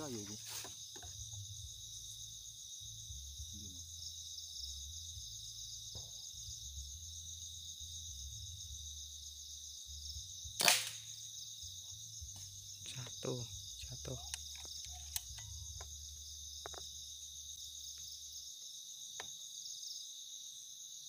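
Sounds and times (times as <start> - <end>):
night insects chirping: 0.0 - 21.0
air rifle shot: 10.6 - 11.1.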